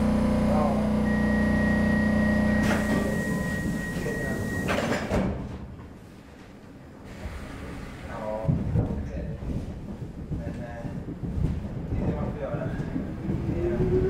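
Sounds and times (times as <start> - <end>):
train equipment hum: 0.0 - 14.0
sliding doors banging shut: 2.3 - 5.8.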